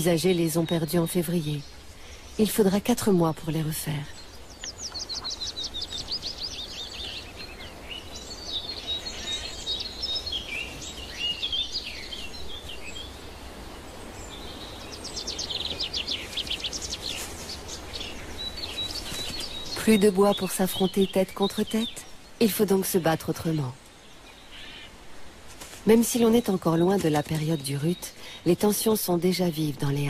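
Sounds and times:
faint background hiss: 0.0 - 30.0
songbirds singing: 0.0 - 30.0.

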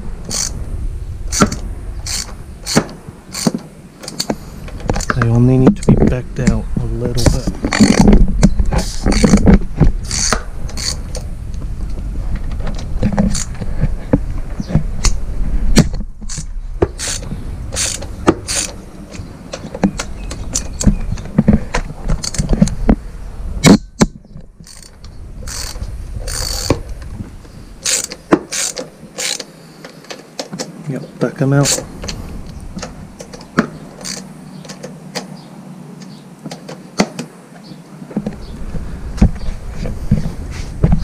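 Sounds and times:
hand ratchet clicking: 0.3 - 0.6, 1.3 - 4.3, 10.1 - 11.2, 16.3 - 18.8, 24.6 - 26.8, 27.8 - 29.5, 34.0 - 34.3.

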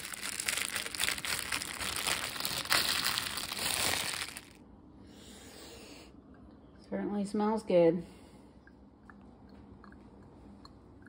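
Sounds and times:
plastic cling wrap crinkling: 0.0 - 4.6.

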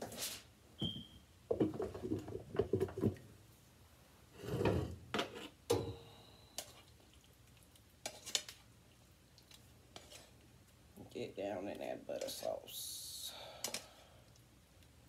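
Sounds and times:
dishes knocking and clinking: 0.8 - 3.2.

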